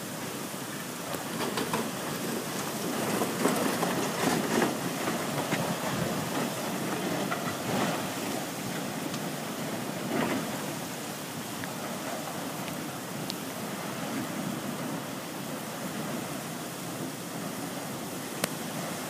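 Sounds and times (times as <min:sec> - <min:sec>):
water rushing down channel: 0:00.0 - 0:19.0.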